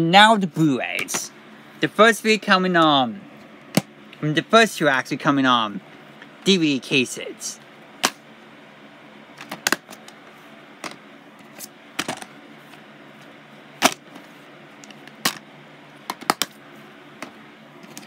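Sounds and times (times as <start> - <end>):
faint steady hum: 0.0 - 18.0
plastic cases clicking and clacking: 9.4 - 10.2, 16.0 - 16.6.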